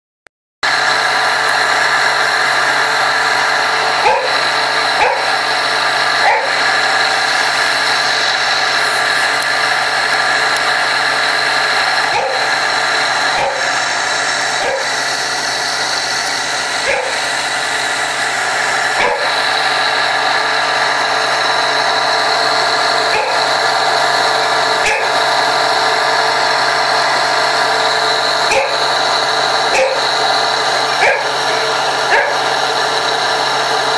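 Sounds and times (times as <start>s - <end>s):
water pump motor running: 0.6s - 33.9s
dog barking: 4.0s - 4.4s, 5.0s - 5.4s, 6.2s - 6.6s, 12.1s - 12.5s, 13.4s - 13.8s, 14.6s - 15.0s, 16.8s - 17.3s, 19.0s - 19.3s, 23.1s - 23.4s, 24.9s - 25.1s, 28.5s - 28.8s, 29.7s - 30.1s, 31.0s - 31.4s, 32.1s - 32.5s.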